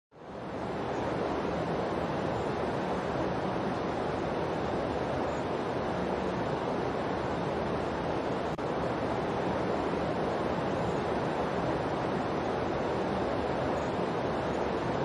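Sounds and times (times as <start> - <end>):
steady hiss-like noise: 0.2 - 15.0.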